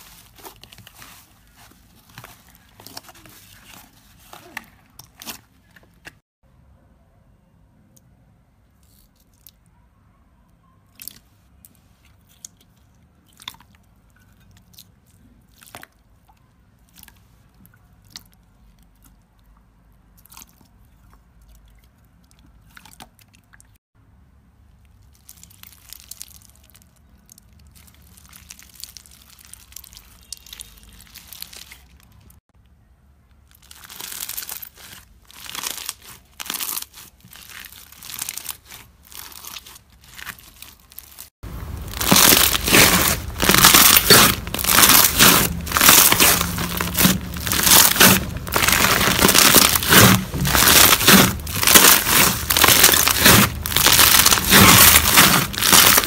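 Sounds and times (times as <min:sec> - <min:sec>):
beaded slime crunching: 0:24.9 - 0:32.4, 0:33.4 - 0:56.0.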